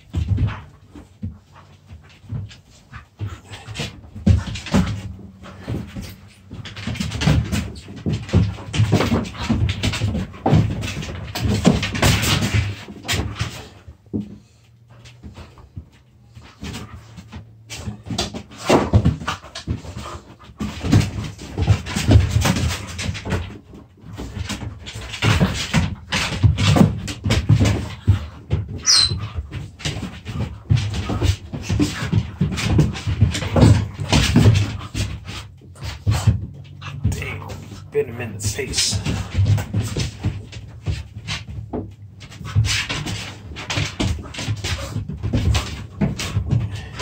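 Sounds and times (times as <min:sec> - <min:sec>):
dogs panting: 0:00.0 - 0:47.0
dogs scuffling: 0:00.0 - 0:47.0
paws scrabbling on mat: 0:00.0 - 0:47.0
dogs growling and whining: 0:28.8 - 0:29.5.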